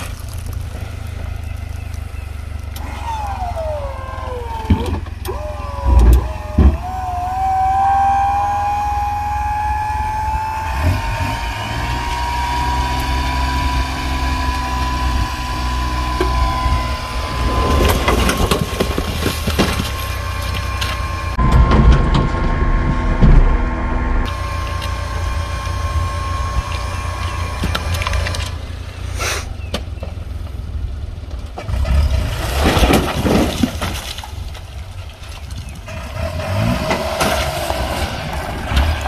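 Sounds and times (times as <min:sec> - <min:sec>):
truck engine humming: 0:00.0 - 0:32.4
hydraulic whine: 0:02.7 - 0:29.2
logs clattering to the ground: 0:17.4 - 0:22.6, 0:31.3 - 0:35.9.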